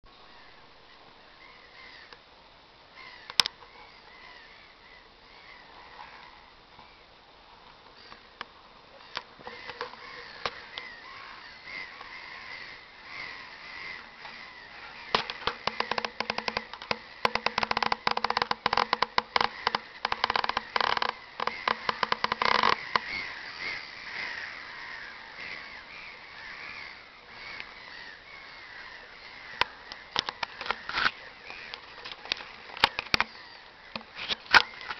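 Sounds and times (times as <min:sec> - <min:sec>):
gulls calling: 0:08.0 - 0:34.9
loud sharp crackling: 0:15.1 - 0:23.3.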